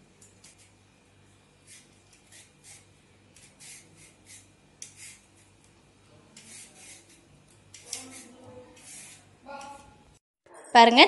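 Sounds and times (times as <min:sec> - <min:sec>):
sweet potato skin scraping: 0:06.3 - 0:09.9.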